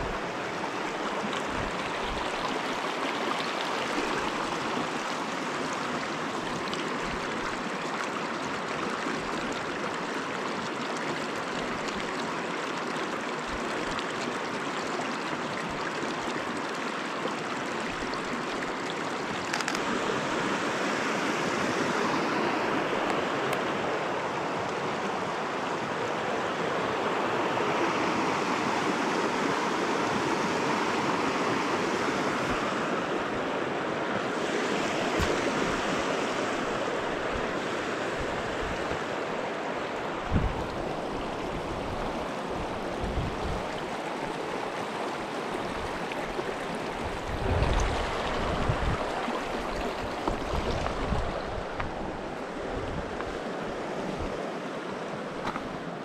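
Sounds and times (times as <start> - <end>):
river water rushing: 0.0 - 56.0.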